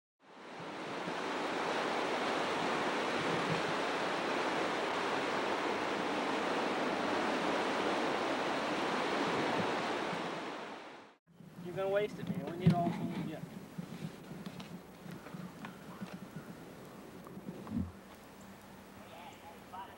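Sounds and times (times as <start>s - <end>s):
whitewater rushing: 0.3s - 12.0s.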